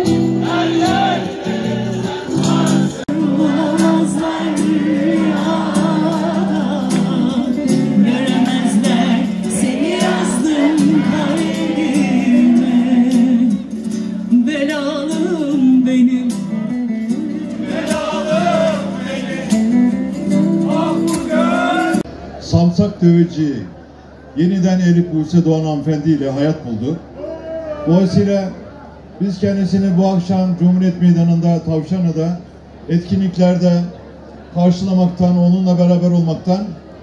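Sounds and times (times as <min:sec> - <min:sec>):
woman singing: 0:03.0 - 0:13.7.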